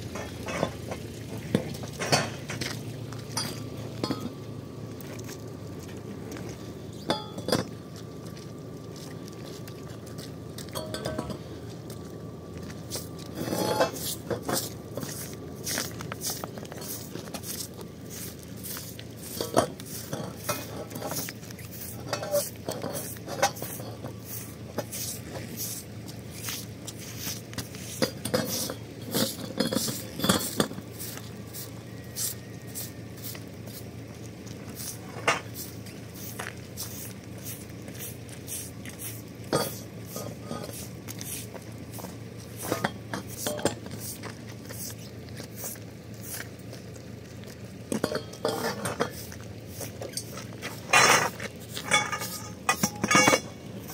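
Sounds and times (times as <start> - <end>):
metal poles clanking: 0.0 - 4.5, 5.8 - 8.0, 10.6 - 11.8, 12.8 - 32.4, 34.6 - 45.8, 47.9 - 53.9
broom scraping wet concrete: 12.8 - 53.9.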